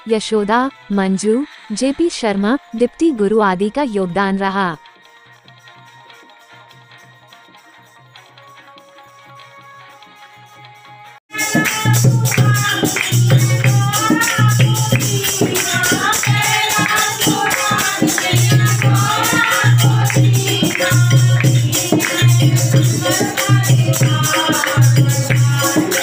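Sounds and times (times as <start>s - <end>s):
women singing devotional song: 0.1s - 4.8s, 11.3s - 26.0s
hand drum beat: 11.4s - 26.0s.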